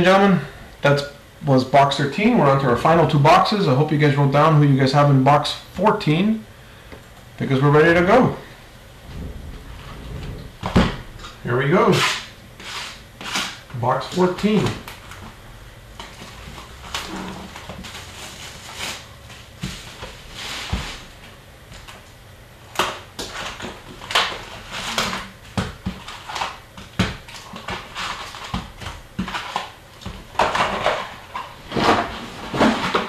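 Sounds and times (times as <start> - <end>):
cardboard and paper rustling: 16.0 - 22.0, 22.8 - 33.0.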